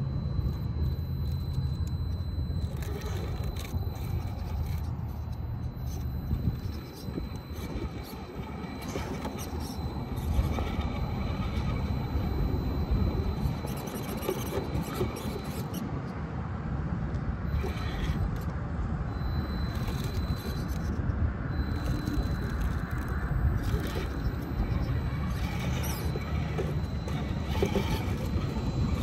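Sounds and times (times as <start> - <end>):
faint high motor whine: 0.0 - 29.0
tyres scraping over rough ground: 1.2 - 15.8, 17.5 - 18.5, 19.4 - 21.0, 21.6 - 29.0.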